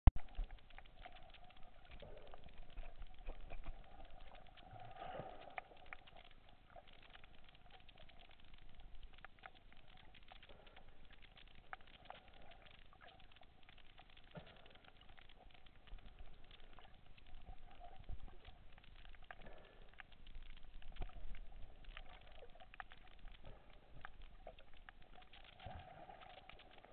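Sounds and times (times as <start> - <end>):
underwater crackle of clicks: 0.1 - 26.9.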